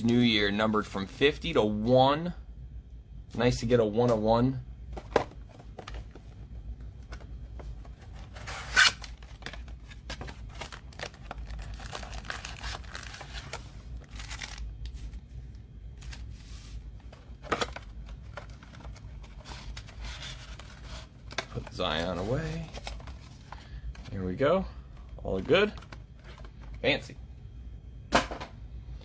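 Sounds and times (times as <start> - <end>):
cardboard rustling and scraping: 5.0 - 15.2, 16.0 - 24.2.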